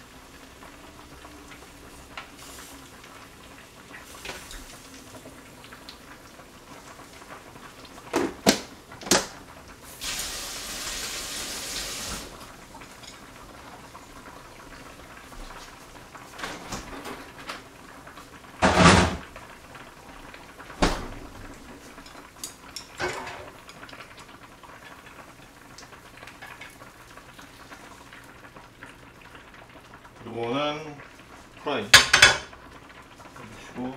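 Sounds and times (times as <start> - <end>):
hiss: 2.2 - 2.9, 9.9 - 12.4
cookware clatter: 21.9 - 23.8, 31.9 - 32.6
cookware knocks: 32.0 - 32.5.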